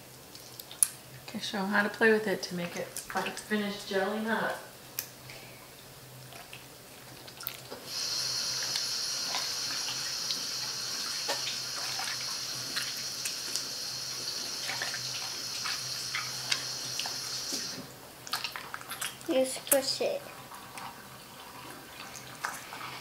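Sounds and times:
slime squelching: 6.3s - 20.2s
tap water running into sink: 7.8s - 17.9s.

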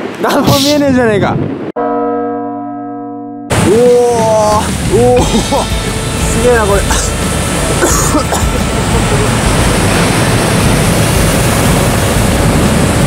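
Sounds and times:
waterfall rushing: 3.5s - 13.0s.

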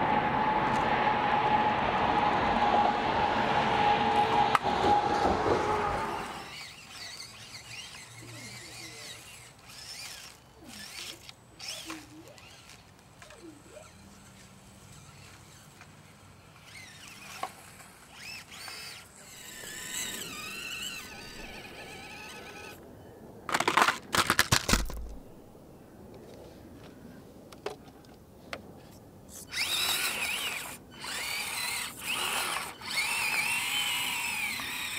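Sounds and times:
small electric motor whining: 0.4s - 22.8s, 29.3s - 34.9s.

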